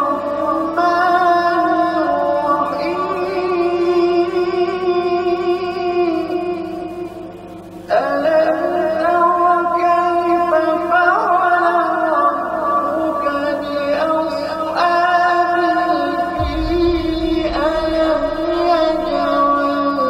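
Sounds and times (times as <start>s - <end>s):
dramatic music with wordless voices: 13.2s - 20.0s
deep rumble: 16.4s - 20.0s.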